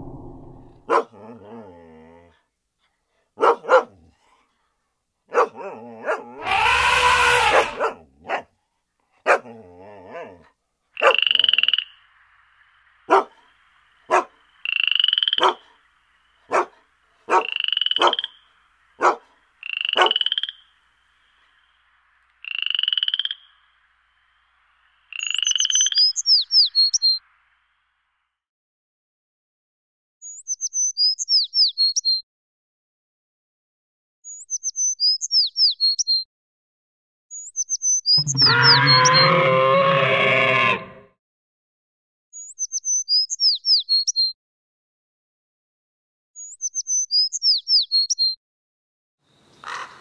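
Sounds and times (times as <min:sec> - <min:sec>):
high rising chirps: 0:00.0 - 0:00.9, 0:38.2 - 0:39.5.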